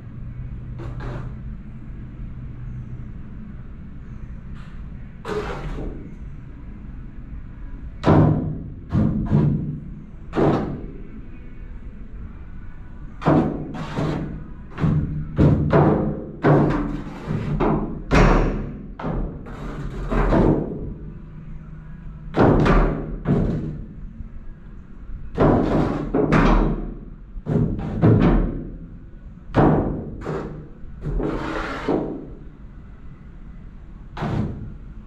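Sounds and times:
hollow knocks echoing in a tunnel: 8.0s - 11.1s, 13.2s - 21.1s, 22.3s - 24.0s, 25.3s - 32.5s, 34.1s - 35.0s.

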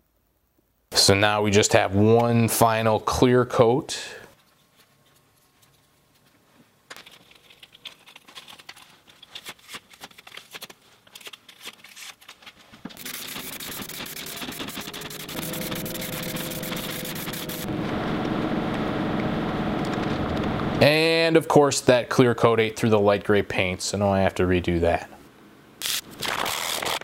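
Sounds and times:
plastic pieces clicking and rustling: 6.9s - 14.8s
spray can being shaken: 13.0s - 17.6s.

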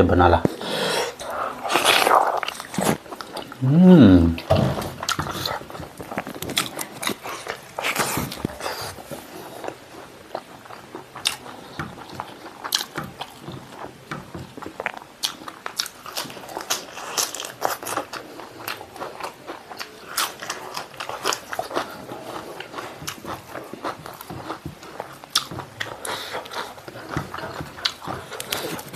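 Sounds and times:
person chewing food: 0.5s - 28.9s
wet mouth sounds: 1.2s - 5.6s
crunches and clicks while chewing: 5.0s - 28.9s.

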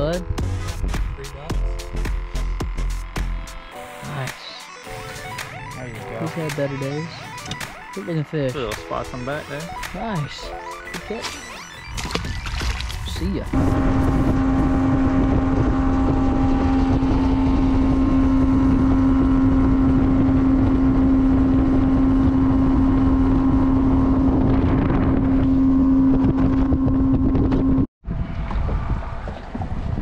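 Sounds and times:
outboard motor running: 9.2s - 30.0s
hull rushing through water: 11.0s - 27.3s
wind buffeting microphone: 11.9s - 30.0s.

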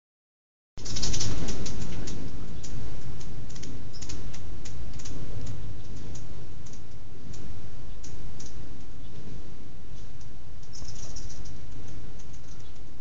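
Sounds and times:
hummingbird chip calls: 0.8s - 13.0s
steady low rumble: 0.8s - 13.0s.

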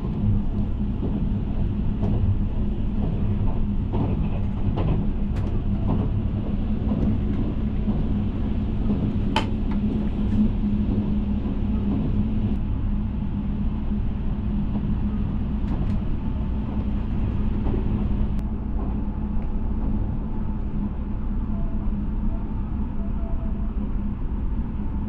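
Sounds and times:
constant hum: 0.0s - 25.0s
train wheels rumbling on rail: 0.0s - 25.0s.

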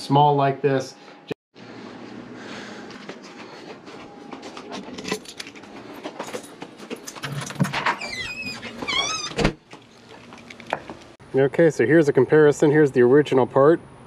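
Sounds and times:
footsteps: 1.7s - 7.2s.

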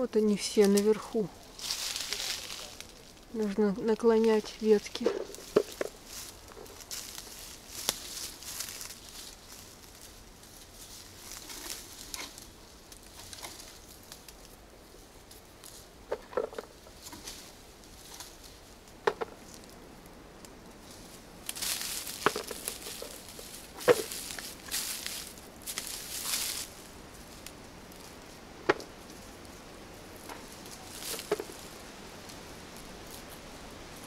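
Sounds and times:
rustling leaves and twigs: 0.0s - 34.0s
footsteps on dry leaves: 0.6s - 3.4s, 4.0s - 14.0s, 20.8s - 34.0s
twigs snapping: 5.0s - 9.0s, 21.4s - 26.8s, 30.1s - 33.4s.

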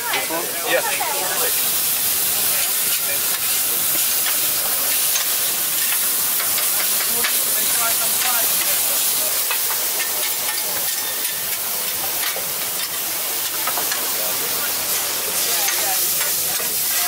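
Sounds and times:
meat sizzling on griddle: 0.0s - 17.0s.

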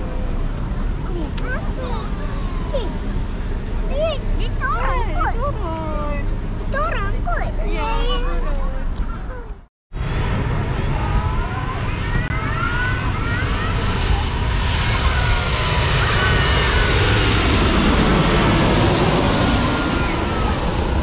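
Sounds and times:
jet airliner passing overhead: 10.0s - 21.0s.

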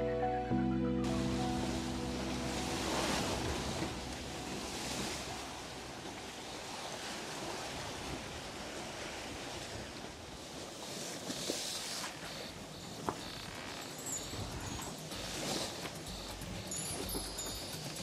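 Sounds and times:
choppy sea washing: 1.1s - 18.0s.

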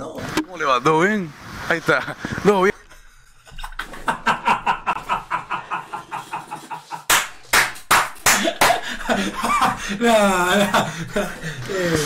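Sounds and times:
man laughing hard: 3.5s - 7.1s, 8.3s - 11.6s.

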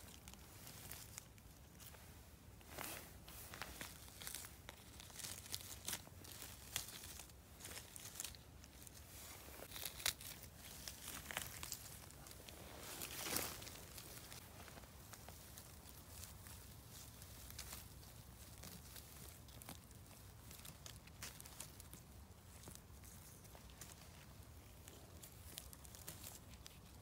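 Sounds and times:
rustling of moss and leaves: 0.0s - 27.0s
small crackles and snaps: 9.6s - 27.0s.

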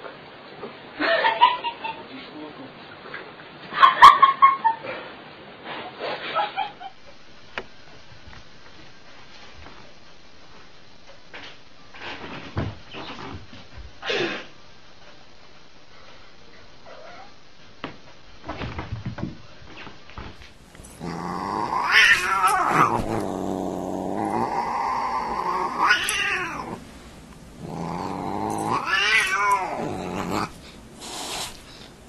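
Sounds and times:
cat yowling: 21.0s - 26.8s, 27.6s - 30.5s.

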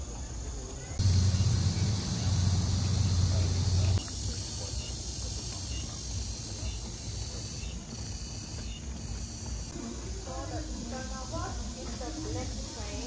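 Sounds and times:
high-pitched insect chorus: 0.0s - 13.0s
loud low rumble: 1.0s - 4.0s.

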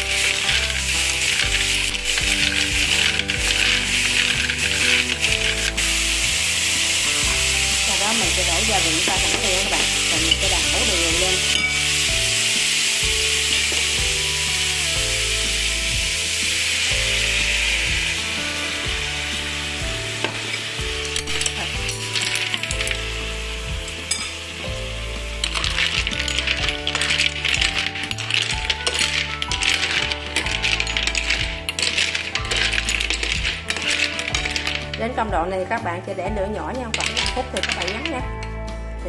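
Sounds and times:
snails sizzling in hot oil: 0.0s - 38.6s
shells and chopsticks clicking on pan: 0.1s - 14.8s, 20.1s - 23.1s, 25.4s - 35.3s, 36.8s - 38.5s.

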